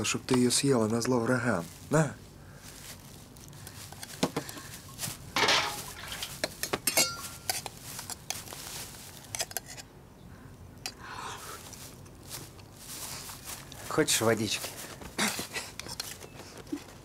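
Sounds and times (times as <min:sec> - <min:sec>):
cutlery and dishes clinking: 0:05.4 - 0:07.7
short ringing clink: 0:06.9 - 0:07.5.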